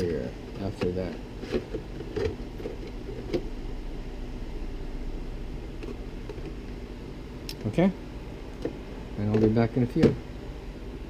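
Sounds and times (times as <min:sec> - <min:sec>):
room tone hum and hiss: 0:00.0 - 0:11.0.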